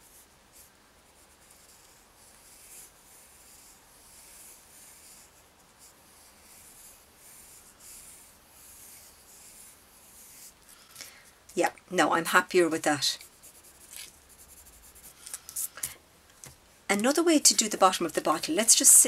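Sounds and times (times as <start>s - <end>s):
pencil scratching on paper: 0.1s - 10.9s, 12.3s - 15.8s.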